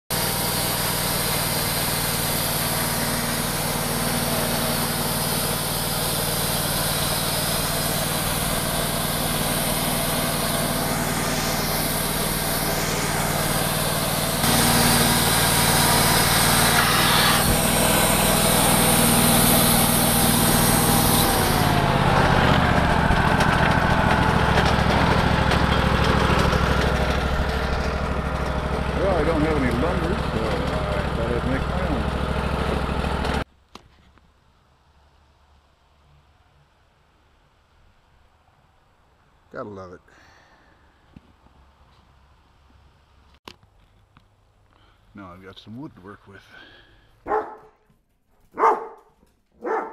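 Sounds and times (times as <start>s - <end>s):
band blade sawing log hiss: 0.1s - 21.9s
sawmill engine running: 0.1s - 33.5s.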